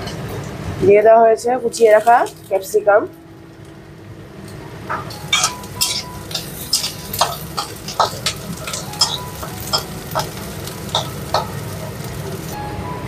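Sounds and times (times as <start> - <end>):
frying sizzle: 0.0 - 12.6
metal spatula scraping wok: 5.0 - 12.6.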